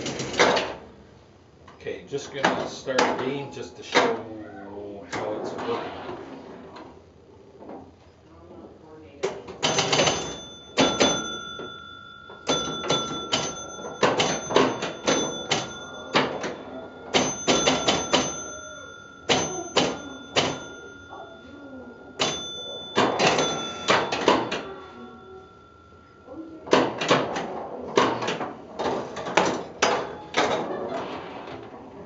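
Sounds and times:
pinball machine relays clicking: 0:00.0 - 0:00.9, 0:09.3 - 0:32.0
pinball scoring bells ringing: 0:09.5 - 0:32.0.

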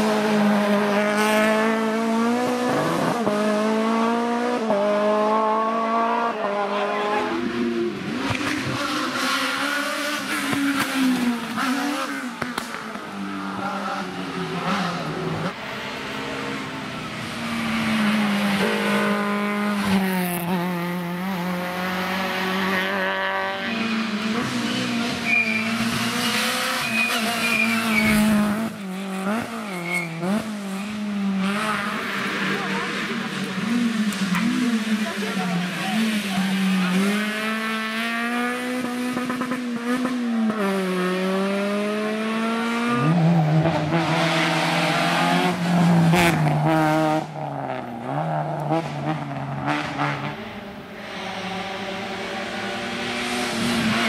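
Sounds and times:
rally car engines revving: 0:00.0 - 0:54.0
tyres squealing: 0:26.8 - 0:28.2.

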